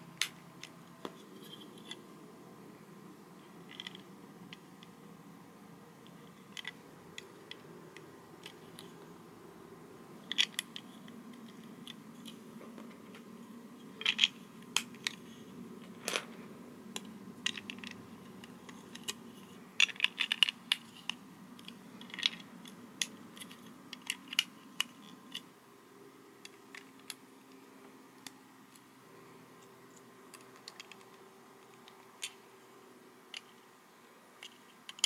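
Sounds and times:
plastic bricks clicking: 0:03.6 - 0:05.0, 0:06.0 - 0:09.1, 0:10.2 - 0:25.5, 0:30.3 - 0:32.5, 0:33.3 - 0:33.7, 0:34.4 - 0:35.0.

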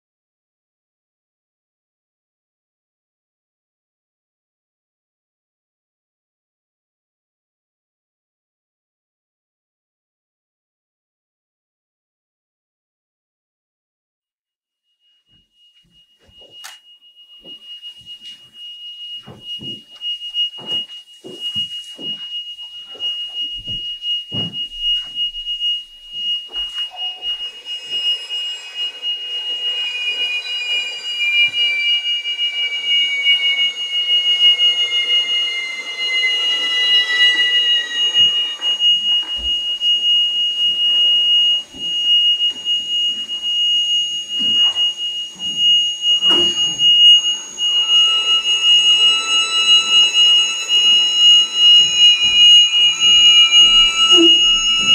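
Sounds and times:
piercing high pure tone: 0:15.1 - 0:54.9
sustained tones sliding downward: 0:19.2 - 0:54.9.

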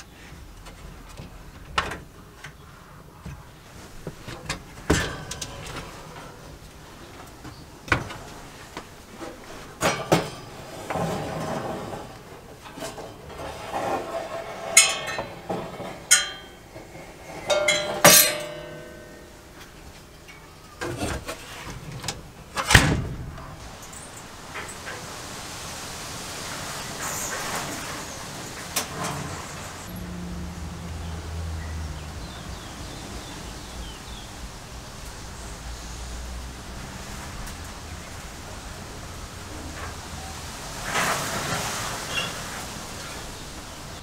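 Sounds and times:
oven door opening and shutting: 0:04.3 - 0:06.5, 0:20.8 - 0:23.6
metal parts clanking: 0:04.4 - 0:06.4, 0:09.8 - 0:24.0.

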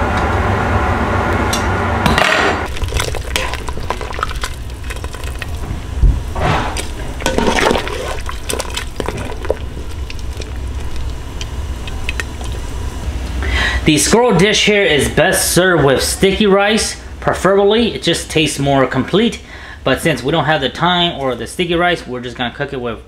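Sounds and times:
mechanical hum: 0:00.0 - 0:23.0
liquid splashing: 0:02.7 - 0:05.7, 0:06.7 - 0:12.8.

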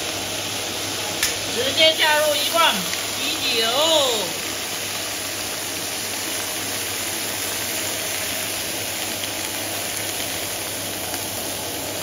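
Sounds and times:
sizzling and bubbling in wok: 0:00.0 - 0:12.0.

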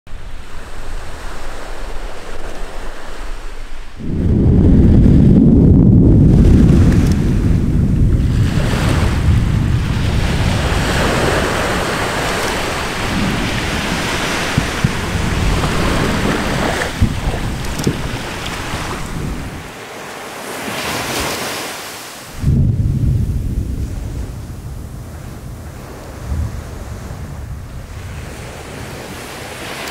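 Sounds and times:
volcanic eruption rushing rumble: 0:00.1 - 0:19.8, 0:22.3 - 0:29.6
loud volcanic blast: 0:03.9 - 0:19.7, 0:22.3 - 0:28.5.

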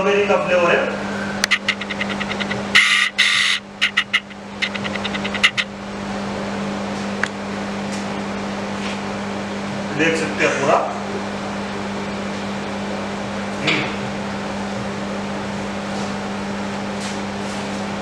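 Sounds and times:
ice cream machine humming: 0:00.0 - 0:18.0
fast run of clicks: 0:01.4 - 0:05.7.

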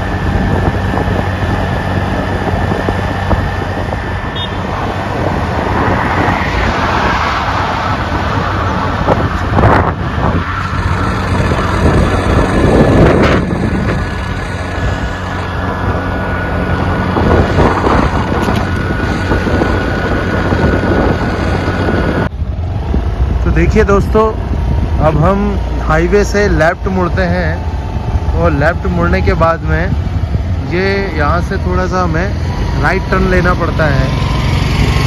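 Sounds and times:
road noise: 0:00.0 - 0:35.0
vehicle engine hum: 0:00.0 - 0:35.0
wind buffeting microphone: 0:00.0 - 0:35.0.

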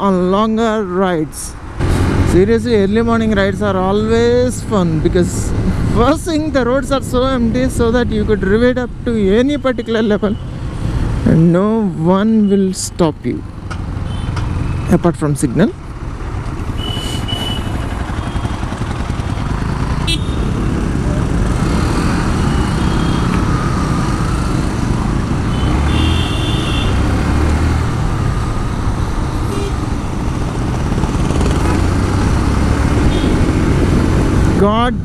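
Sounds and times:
wind and road noise: 0:00.0 - 0:35.0
vehicle horns tooting: 0:14.1 - 0:14.8, 0:16.7 - 0:18.6, 0:20.0 - 0:20.8, 0:22.6 - 0:23.5, 0:25.4 - 0:27.1, 0:29.4 - 0:29.9, 0:33.0 - 0:33.5
motorcycle engine running: 0:15.8 - 0:34.4.

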